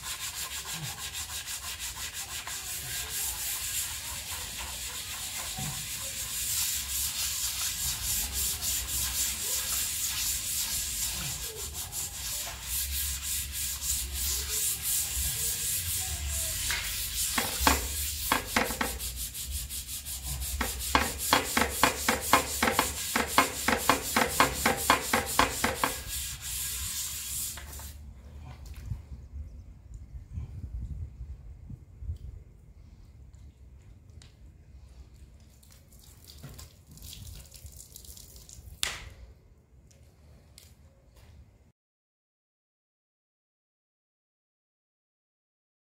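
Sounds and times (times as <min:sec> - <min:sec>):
scrubbing soapy metal plate: 0:00.0 - 0:27.9.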